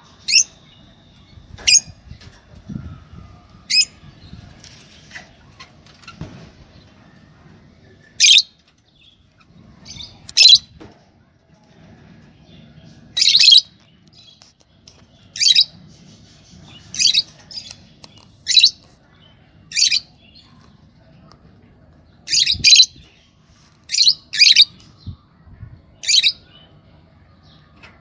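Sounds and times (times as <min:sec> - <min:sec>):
lovebirds shrill calls: 0:00.2 - 0:02.0, 0:03.6 - 0:04.0, 0:09.4 - 0:10.7, 0:13.2 - 0:15.8, 0:16.4 - 0:18.8, 0:22.3 - 0:23.2, 0:23.9 - 0:24.8, 0:26.0 - 0:26.5.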